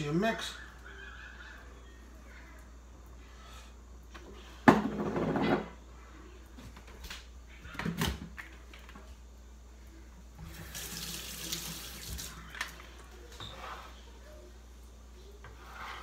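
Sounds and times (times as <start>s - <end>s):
faucet running into sink: 10.4s - 12.3s.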